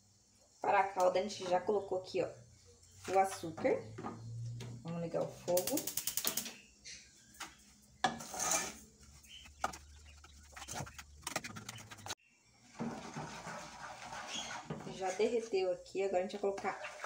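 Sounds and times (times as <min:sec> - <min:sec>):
wooden spoon scraping sugar in pot: 0:08.1 - 0:12.1, 0:12.7 - 0:17.0.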